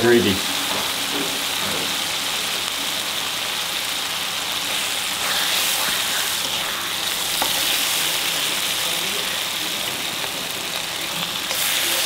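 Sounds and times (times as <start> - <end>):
gravy sizzling in metal pan: 0.0 - 12.0.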